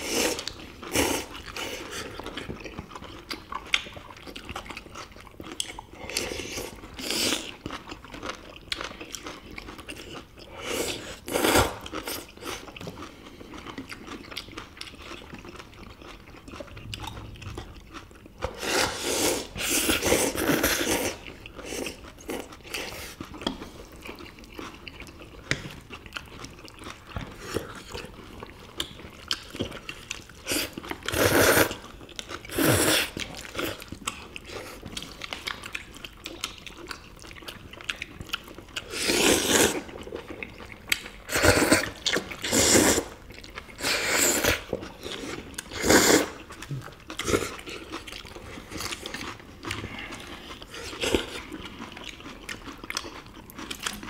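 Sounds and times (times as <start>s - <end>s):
chewing: 0.0s - 54.0s
people slurping noodles: 18.5s - 23.2s, 30.4s - 31.8s, 32.5s - 33.8s, 38.8s - 39.9s, 41.3s - 43.2s, 43.8s - 47.9s.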